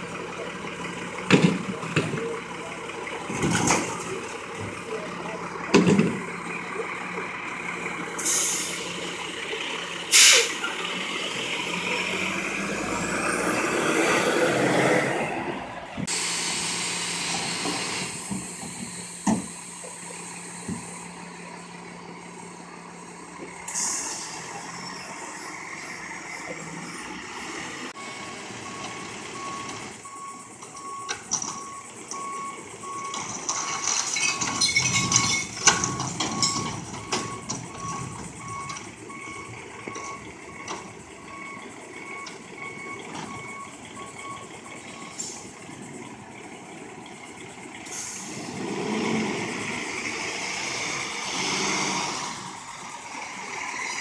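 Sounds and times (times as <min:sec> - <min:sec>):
diesel truck engine running: 0:00.0 - 0:54.0
hydraulics whining: 0:00.0 - 0:54.0
air brakes hissing: 0:08.2 - 0:09.0, 0:10.1 - 0:10.8, 0:16.0 - 0:21.2, 0:23.7 - 0:24.6, 0:47.8 - 0:48.6
recyclables clanking into hopper: 0:33.1 - 0:38.3.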